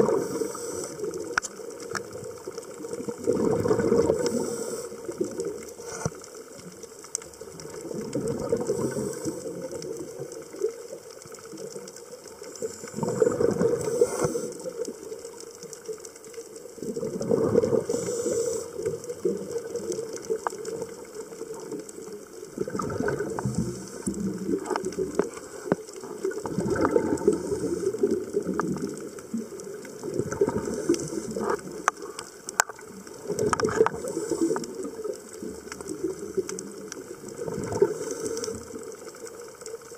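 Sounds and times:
regulator exhalation bubbling: 3.2 - 4.9, 12.9 - 14.4, 22.6 - 24.7, 26.4 - 28.8.

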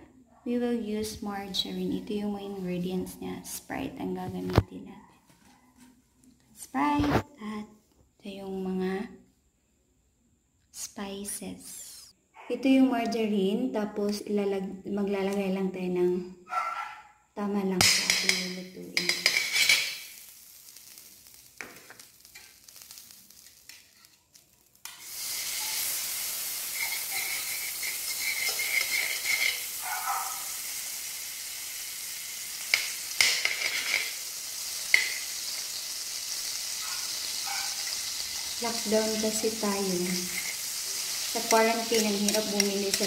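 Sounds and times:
margarine sizzling in a wok: 17.6 - 43.0
metal spoon scraping a pan: 17.9 - 20.2, 22.3 - 30.8, 32.7 - 34.2, 37.1 - 43.0.

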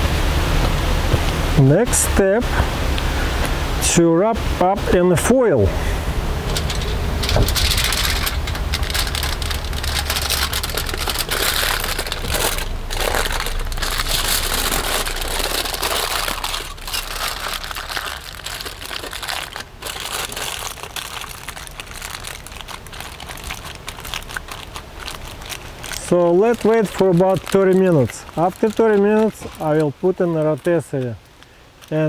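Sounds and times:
aluminium foil crinkling: 6.4 - 32.0.

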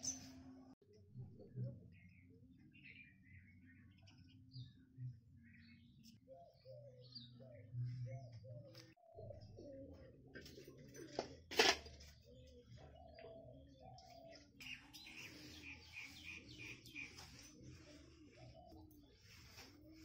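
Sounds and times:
small birds chirping: 0.0 - 0.5, 1.4 - 20.0
dove cooing: 6.4 - 20.0.

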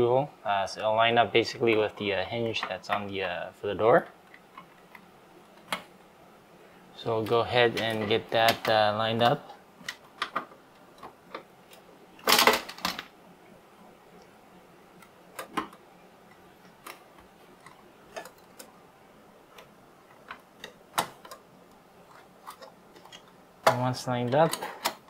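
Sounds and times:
plastic parts clattering: 12.2 - 13.1.

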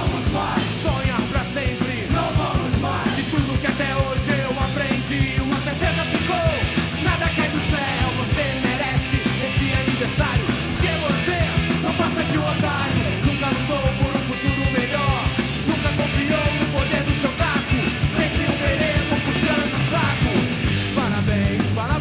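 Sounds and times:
punk rock band playing: 0.0 - 22.0.

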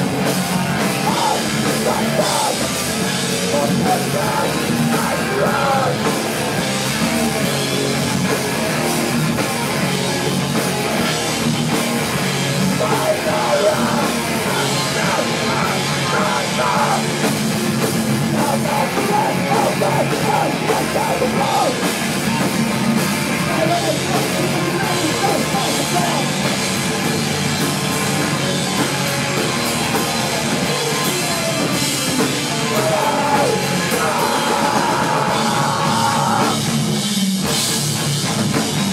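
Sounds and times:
punk band playing: 0.0 - 38.9
person singing into microphone: 1.0 - 2.7, 3.5 - 6.0, 12.7 - 17.0, 18.4 - 21.8, 32.5 - 36.6.

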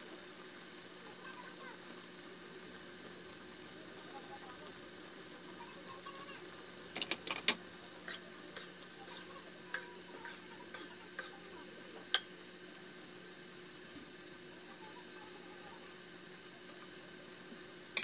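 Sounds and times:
metal spoon scraping wok: 8.1 - 11.4.

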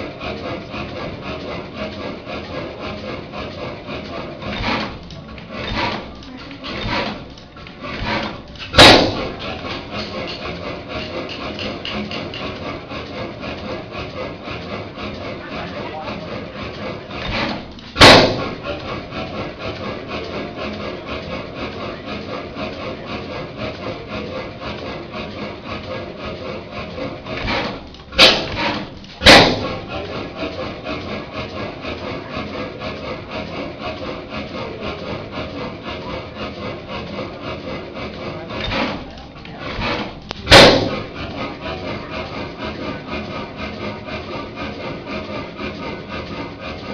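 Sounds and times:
engine mechanical clatter: 0.0 - 46.9
loud exhaust bang: 8.7 - 9.4, 18.0 - 18.6, 40.4 - 41.0.

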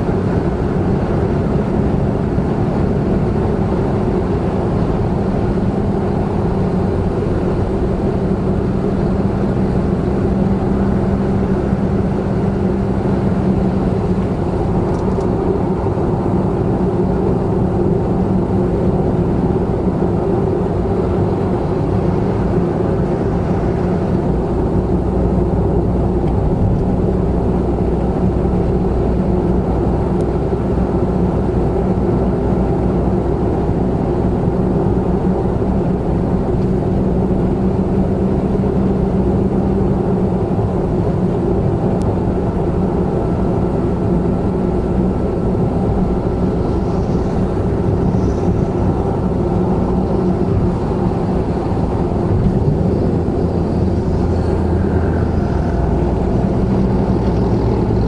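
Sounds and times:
car engine cruising: 0.0 - 58.0
tyre and road noise: 0.0 - 58.0.

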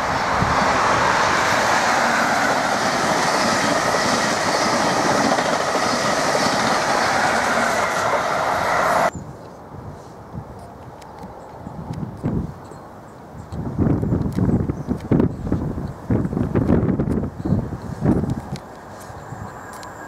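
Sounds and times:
train passing at speed: 0.0 - 9.2, 16.2 - 20.0.

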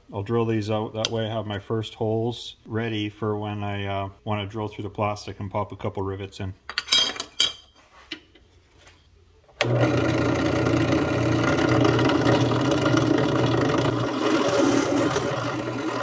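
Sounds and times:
drill press motor humming: 9.6 - 16.0.

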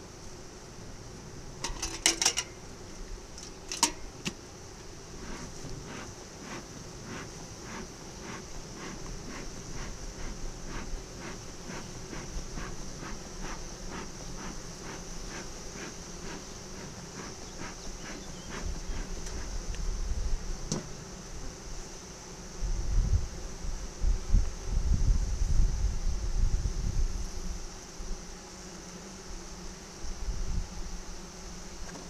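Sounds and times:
bees humming: 0.0 - 22.6
bee smoker bellows puffing: 1.4 - 21.7
wind buffeting microphone: 24.0 - 27.2.

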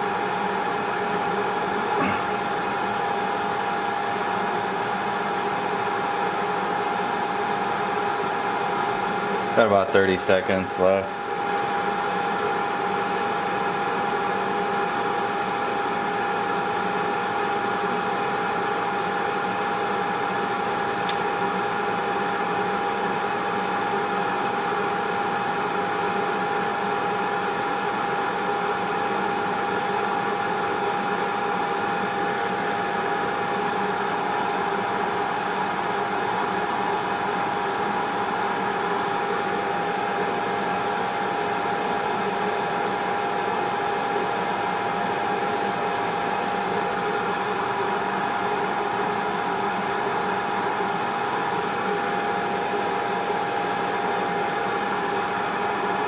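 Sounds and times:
mid-pitched hum: 1.7 - 3.1, 9.4 - 11.5.

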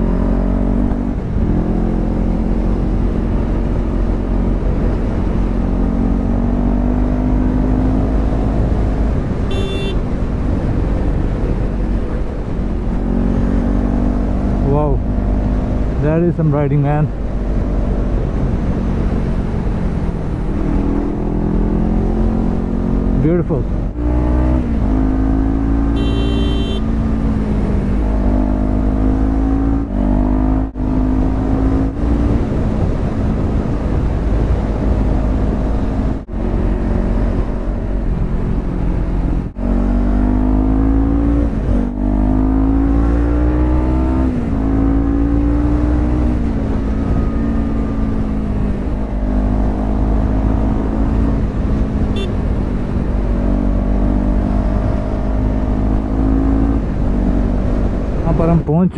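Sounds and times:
motorcycle engine revving: 0.0 - 10.0, 12.8 - 58.6
short high-pitched horn beep: 9.5 - 10.0, 26.0 - 26.9, 52.2 - 52.4.

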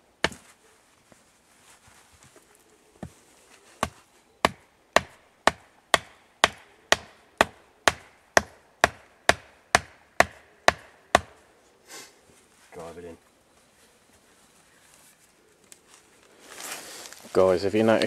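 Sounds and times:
stake being hammered into ground: 0.2 - 0.4, 3.8 - 11.4.

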